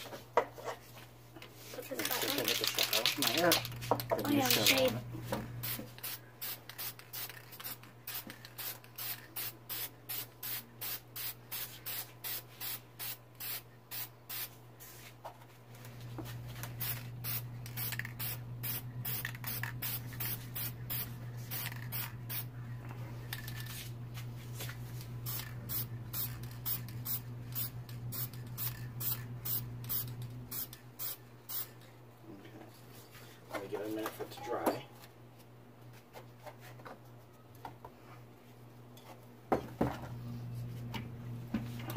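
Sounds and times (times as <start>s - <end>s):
spray paint can hissing: 5.6s - 14.6s, 16.7s - 22.4s, 25.2s - 31.7s.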